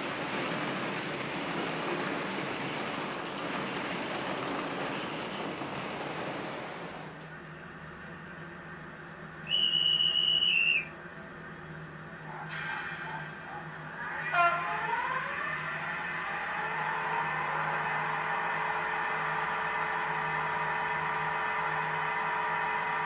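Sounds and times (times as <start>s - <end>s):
model train rumbling clatter: 0.0s - 7.9s
high train whistle blast: 9.4s - 11.0s, 12.5s - 23.0s.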